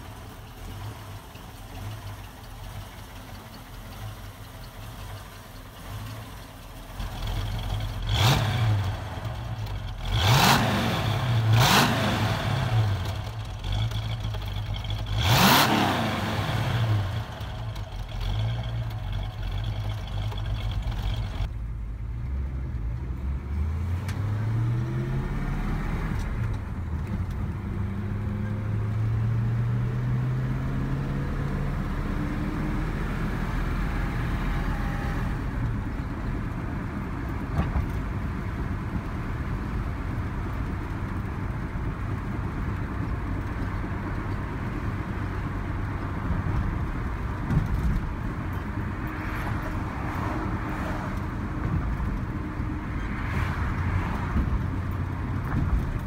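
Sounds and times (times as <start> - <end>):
road noise: 0.0 - 56.0
car engine revving: 6.9 - 21.5.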